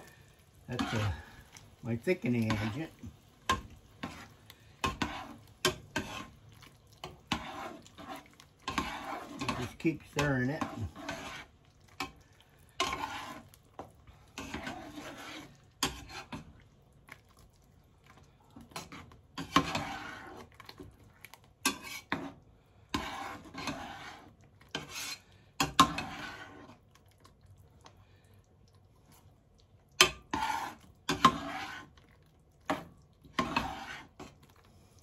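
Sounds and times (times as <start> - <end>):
metal spoon scraping a pot: 0.0 - 13.6, 14.3 - 16.6, 18.6 - 20.9, 21.6 - 26.8, 30.0 - 34.6.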